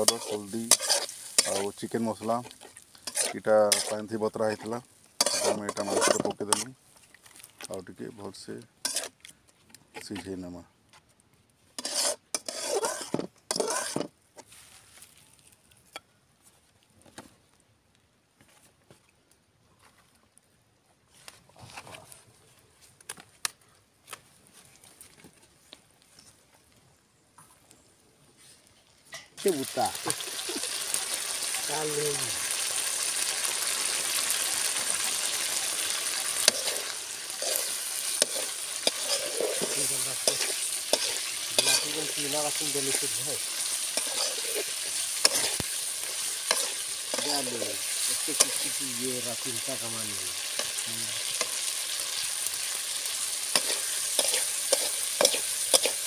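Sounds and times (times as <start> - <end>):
metal ladle scraping pan: 0.0 - 1.8, 2.5 - 6.7, 8.8 - 9.2, 11.8 - 14.1, 35.6 - 48.8, 53.5 - 56.0.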